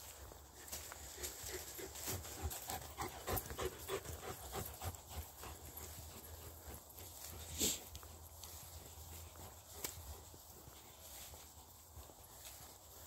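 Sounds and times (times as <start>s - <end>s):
dog panting: 1.0s - 10.9s.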